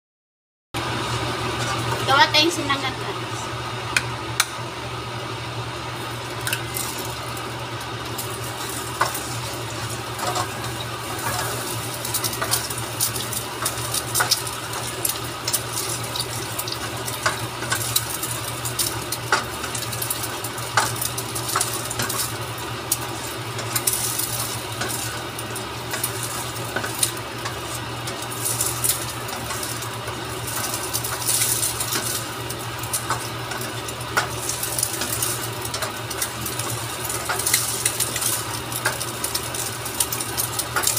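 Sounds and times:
egg sizzling in hot oil: 0:00.8 - 0:02.9, 0:03.5 - 0:40.9
spatula scraping pan: 0:01.5 - 0:02.2, 0:08.2 - 0:29.8
spatula tapping pan: 0:18.8 - 0:22.3.

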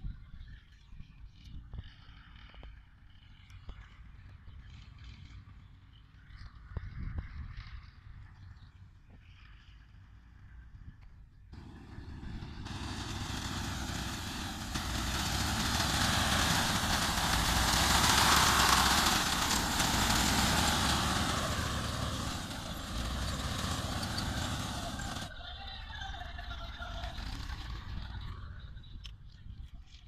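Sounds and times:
tractor engine running: 0:11.6 - 0:25.3, 0:26.6 - 0:28.7.

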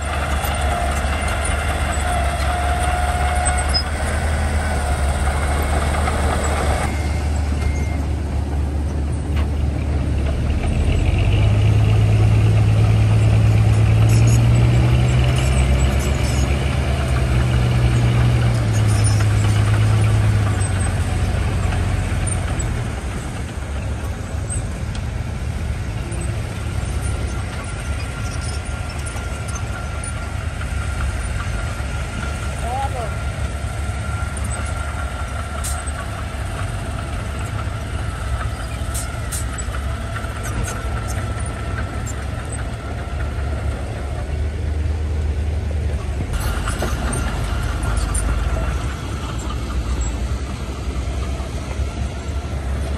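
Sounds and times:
bulldozer diesel engine running: 0:00.0 - 0:52.9.

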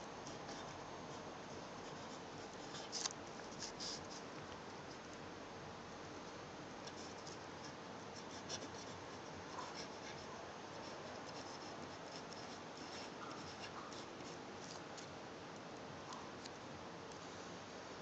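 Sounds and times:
steady low hiss: 0:00.0 - 0:18.0
pen nib scratching on paper: 0:00.3 - 0:05.1, 0:06.8 - 0:15.1.

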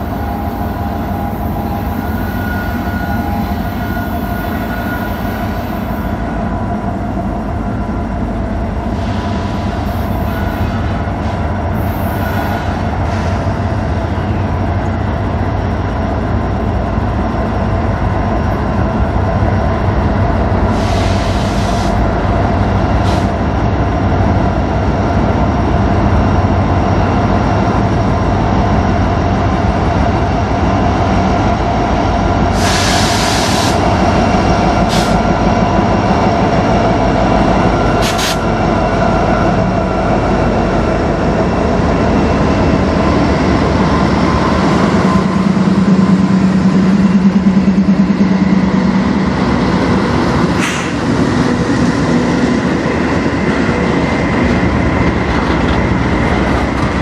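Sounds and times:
diesel locomotive engine drone: 0:00.0 - 0:57.0
train wheels clattering on rails: 0:26.3 - 0:57.0.

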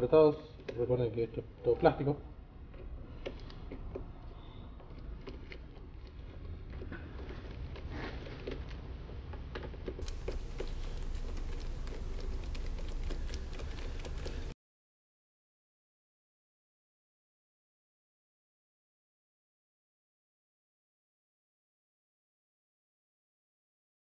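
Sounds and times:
steady low hum: 0:10.0 - 0:14.6.

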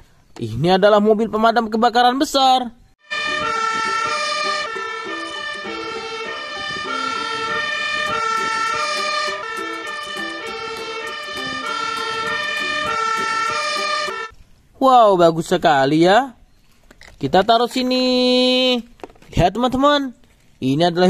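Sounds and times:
two-tone fire engine siren: 0:03.0 - 0:14.3.

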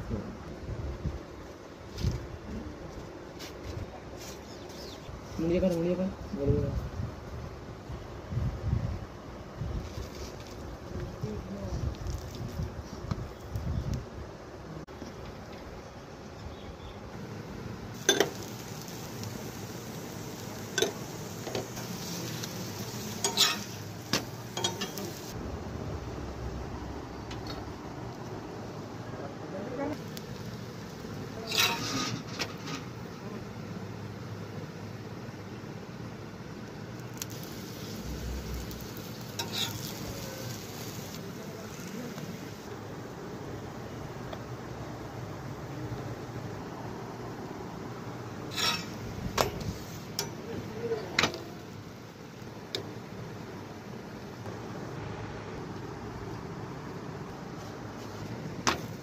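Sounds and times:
flatbread sizzling on a hot pan: 0:09.6 - 0:14.0, 0:17.2 - 0:25.4, 0:29.8 - 0:55.0, 0:56.2 - 0:59.0.

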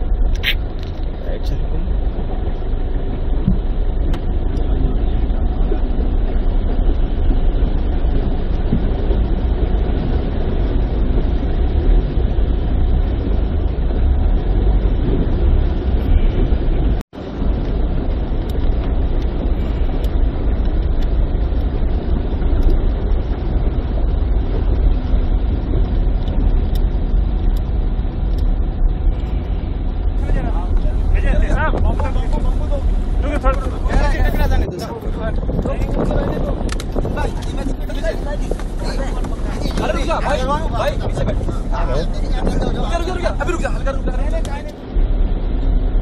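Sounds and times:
vehicles driving through floodwater: 0:00.0 - 0:46.0
water rushing: 0:28.6 - 0:45.6.

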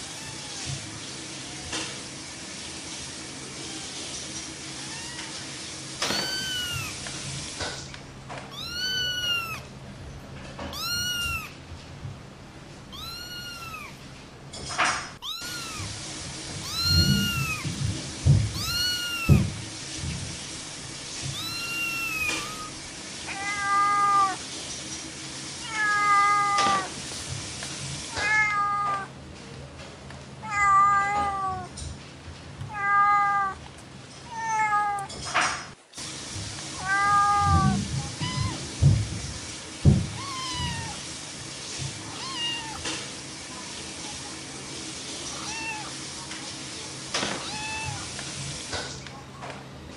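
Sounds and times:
cat meowing: 0:00.0 - 0:00.8, 0:04.8 - 0:07.1, 0:08.5 - 0:09.7, 0:10.6 - 0:11.6, 0:12.9 - 0:14.0, 0:15.2 - 0:17.8, 0:18.5 - 0:19.6, 0:21.2 - 0:24.4, 0:25.6 - 0:27.0, 0:28.1 - 0:29.1, 0:30.4 - 0:31.7, 0:32.7 - 0:33.6, 0:34.3 - 0:35.1, 0:36.8 - 0:38.8, 0:40.1 - 0:41.0, 0:42.1 - 0:42.9, 0:45.3 - 0:46.0, 0:47.3 - 0:48.1.

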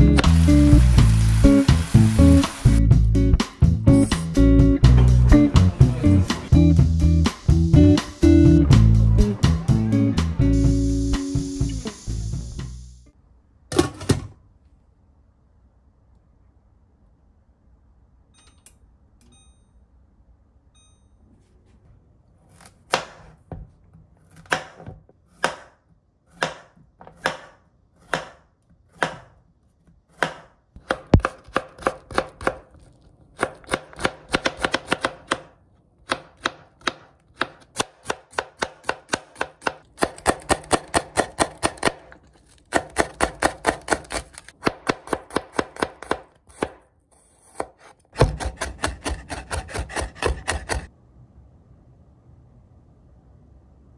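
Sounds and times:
knife chopping on cutting board: 0:24.3 - 0:29.4, 0:30.1 - 0:32.7, 0:33.4 - 0:35.5, 0:36.1 - 0:50.9.

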